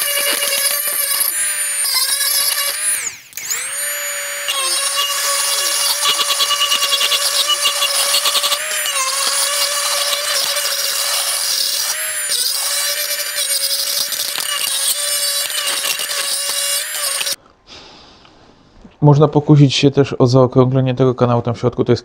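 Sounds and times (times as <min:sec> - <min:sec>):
die grinder motor whine: 0:00.0 - 0:17.4.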